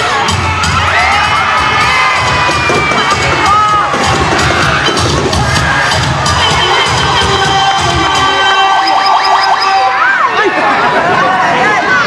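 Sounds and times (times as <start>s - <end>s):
music with steady beat: 0.0s - 9.9s
crowd cheering and screaming: 0.0s - 12.0s.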